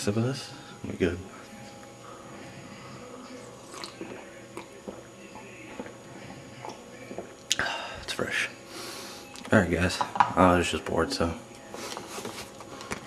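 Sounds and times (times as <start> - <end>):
faint steady hum: 0.0 - 13.0
person sipping and swallowing water: 3.4 - 7.6.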